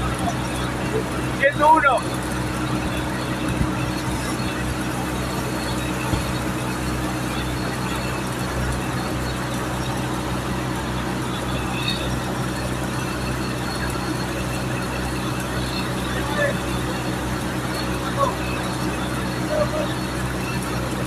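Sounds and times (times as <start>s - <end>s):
steady low hum: 0.0s - 21.0s
welding arc crackling: 0.0s - 21.0s.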